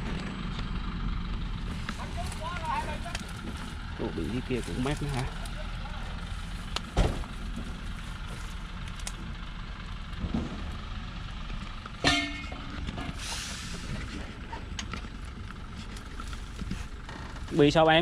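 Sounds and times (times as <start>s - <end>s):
diesel truck engine running: 0.0s - 18.0s
truck horn toot: 12.0s - 13.2s
air hiss: 13.2s - 14.0s.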